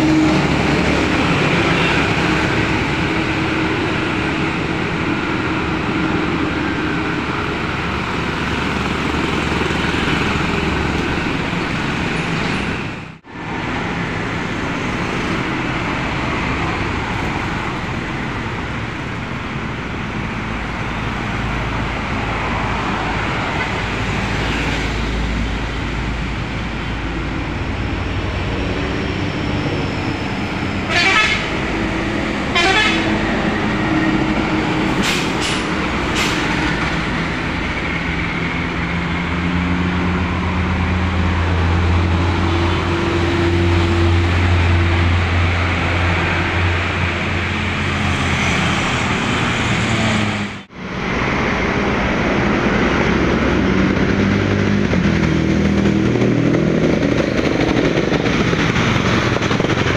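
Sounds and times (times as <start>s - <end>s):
bus engine drone: 0.0s - 59.9s
vehicle engine: 0.0s - 59.9s
bus horn toots: 30.8s - 33.6s.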